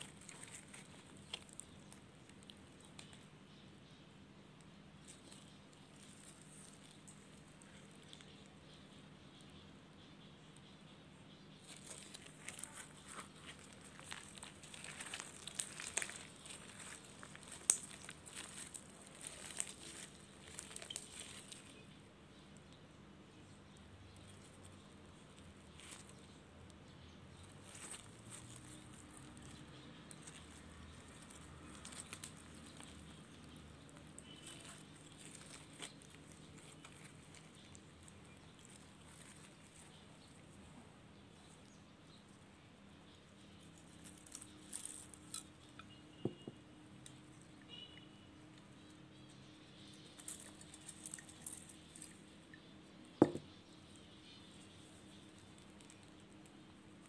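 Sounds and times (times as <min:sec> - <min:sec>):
slime crackling and clicking: 0:11.7 - 0:21.8, 0:27.6 - 0:40.0.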